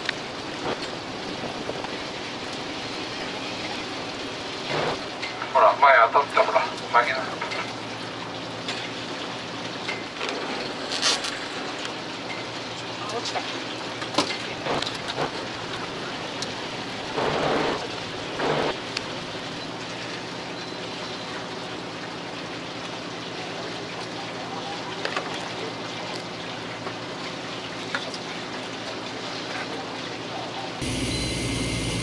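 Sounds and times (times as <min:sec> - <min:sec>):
boat engine humming: 0:00.0 - 0:07.0, 0:14.3 - 0:21.5, 0:30.8 - 0:32.0
water hissing around boat: 0:00.0 - 0:08.0, 0:13.2 - 0:21.6.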